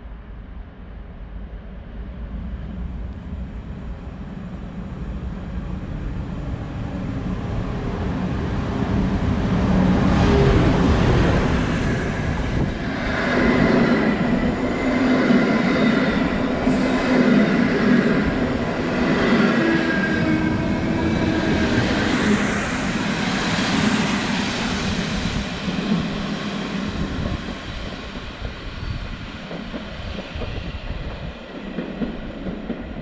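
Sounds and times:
electric locomotive rumble: 1.8s - 33.0s.

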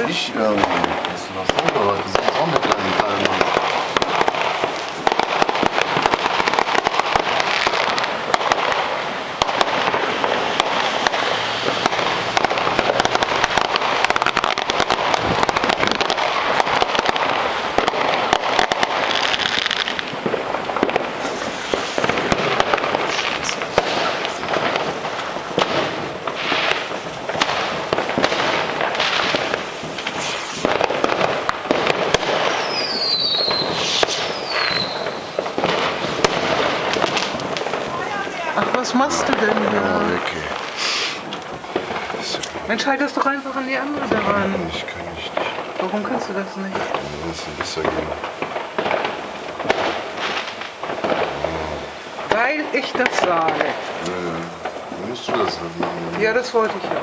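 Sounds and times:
fireworks crackling and banging: 0.0s - 57.0s
falling firework whistle: 30.0s - 31.1s, 32.1s - 35.4s.

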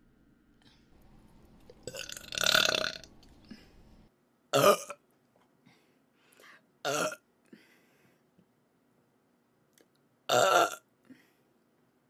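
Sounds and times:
woman burping: 4.6s - 5.0s, 6.8s - 7.2s, 10.3s - 10.8s.

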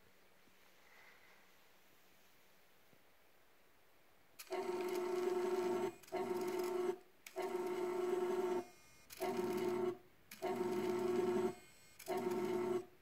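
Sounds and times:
small electric motor whirring: 4.4s - 12.9s.

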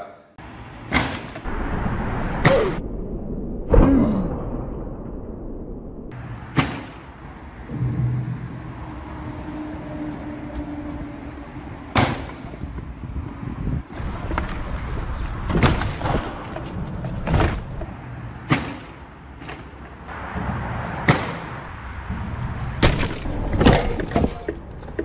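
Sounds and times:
steady low rumble: 1.4s - 6.5s, 7.2s - 12.0s
sharp knocks and clunks: 15.4s - 21.6s, 22.8s - 25.0s
motorcycle falling with thud: 22.8s - 24.5s.

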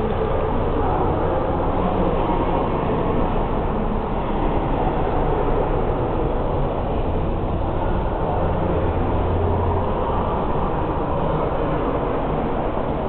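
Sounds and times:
low drone: 0.0s - 13.0s
station hall rumble: 0.0s - 13.0s.

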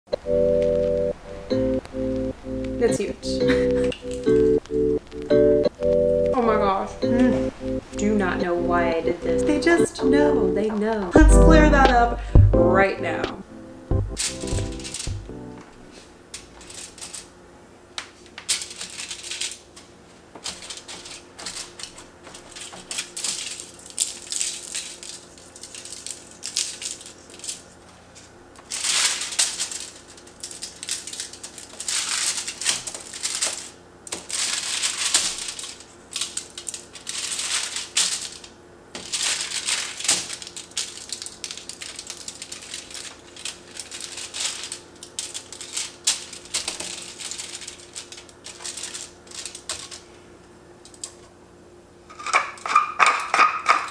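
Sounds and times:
aluminium foil crinkling: 15.9s - 17.3s, 18.1s - 50.2s.

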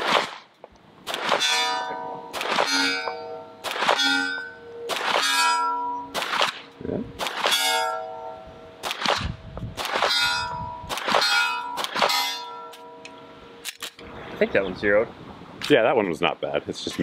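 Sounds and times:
pistol shots: 0.0s - 7.8s, 8.8s - 12.5s
steel targets ringing: 1.4s - 6.4s, 7.4s - 8.8s, 10.0s - 13.6s.

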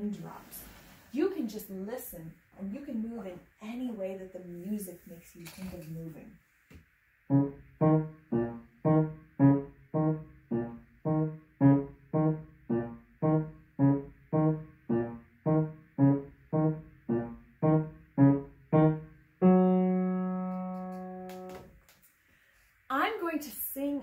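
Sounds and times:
piano playing short chords: 7.3s - 21.6s.

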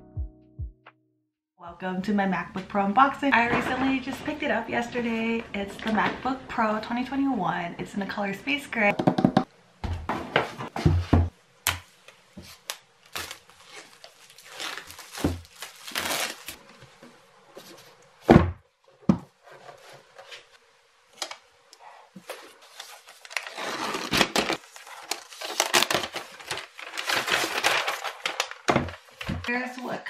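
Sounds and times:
packaging crinkling and rustling: 12.5s - 16.6s, 22.2s - 29.6s.

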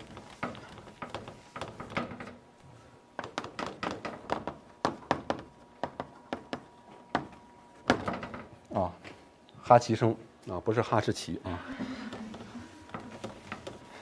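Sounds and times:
chalk tapping and scratching: 0.0s - 2.1s, 12.2s - 13.9s.

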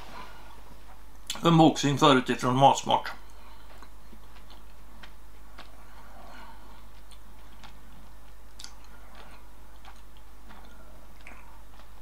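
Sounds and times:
steady low hum: 0.0s - 12.0s
person chewing chocolate: 3.2s - 12.0s.

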